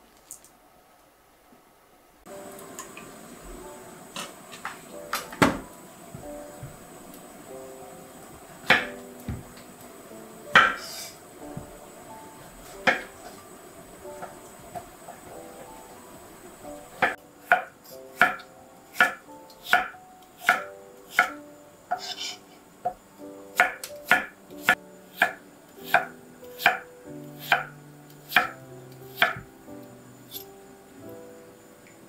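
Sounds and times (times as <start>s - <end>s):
knife chopping on cutting board: 8.7s - 9.4s, 10.5s - 10.9s, 12.8s - 13.1s, 19.0s - 21.3s, 23.6s - 26.8s, 28.3s - 28.6s, 29.2s - 29.4s.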